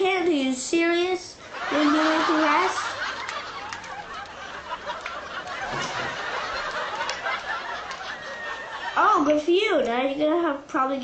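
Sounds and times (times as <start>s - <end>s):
muffled chuckling: 1.7s - 9.0s.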